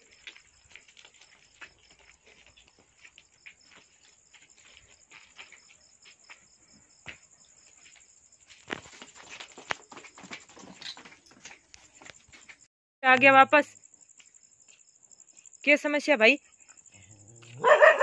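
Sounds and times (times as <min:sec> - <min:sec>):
footsteps on hard ground: 0:00.0 - 0:12.7
crickets chirping: 0:00.0 - 0:18.0.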